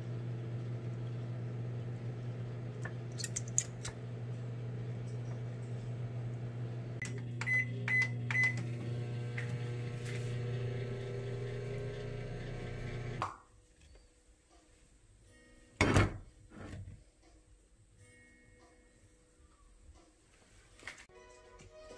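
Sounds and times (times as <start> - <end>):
microwave oven humming: 0.0 - 13.2.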